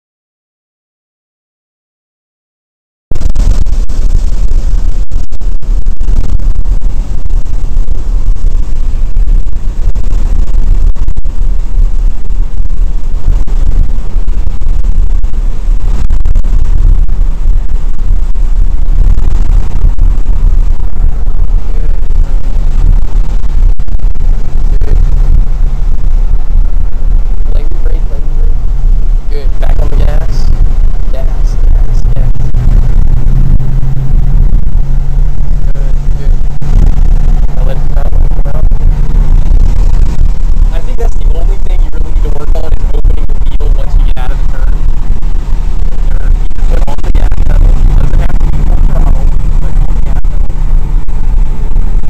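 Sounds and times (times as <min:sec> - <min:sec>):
car engine and road noise rumble: 0:03.1 - 0:52.0.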